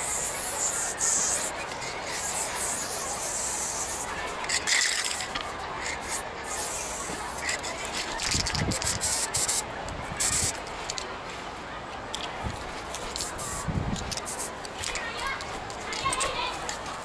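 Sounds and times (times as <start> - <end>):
paint spray hissing: 0.0 - 4.1, 6.0 - 7.5, 8.7 - 9.6, 10.2 - 10.6, 13.2 - 14.5.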